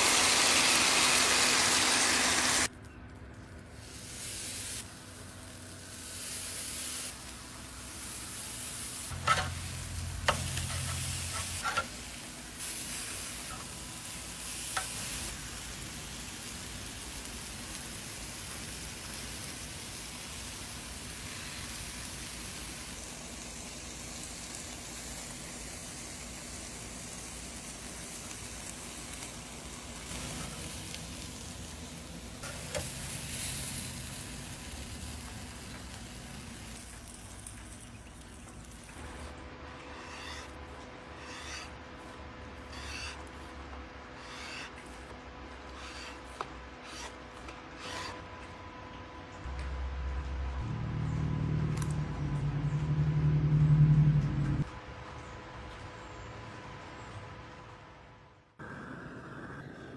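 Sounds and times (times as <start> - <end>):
chicken sizzling on a grill: 0.0 - 2.8, 3.4 - 43.6.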